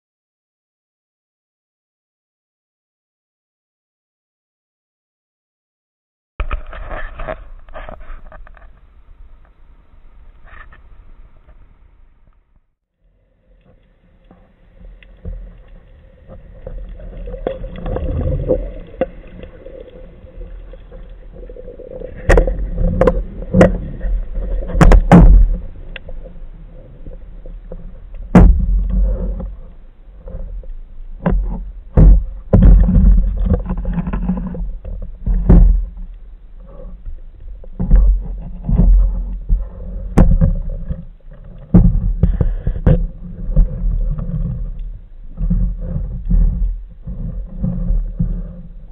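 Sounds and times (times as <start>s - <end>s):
low underwater rumble: 13.0s - 48.9s
heavy thumps and knocks: 22.2s - 25.7s, 28.3s - 29.5s, 31.2s - 33.7s, 37.8s - 40.6s.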